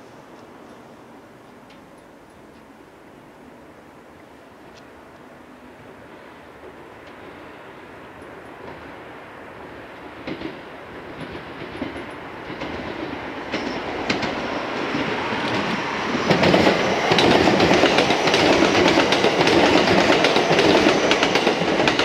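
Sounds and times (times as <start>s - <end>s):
electric train passing: 0.0s - 22.0s
wheels clicking over rail joints: 10.0s - 22.0s.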